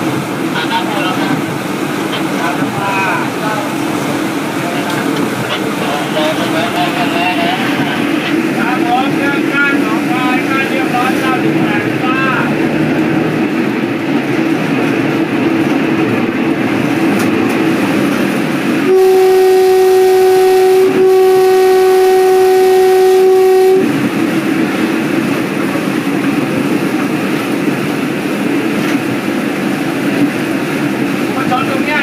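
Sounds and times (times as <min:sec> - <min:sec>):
train rumbling along track: 0:00.0 - 0:32.0
train horn blast: 0:18.8 - 0:24.0.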